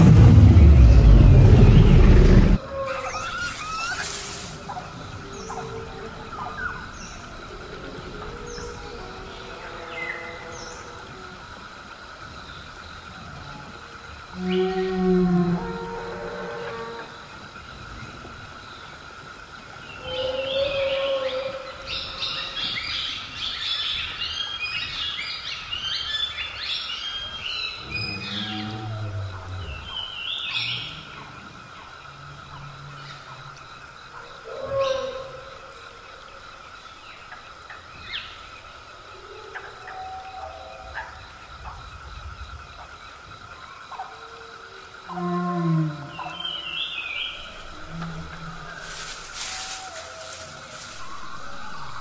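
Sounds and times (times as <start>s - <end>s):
steady high drone: 0.0s - 2.6s.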